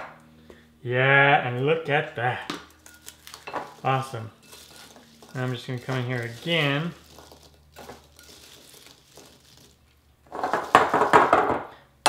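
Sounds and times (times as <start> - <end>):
berries rattling in glass bowl: 2.7 - 11.5.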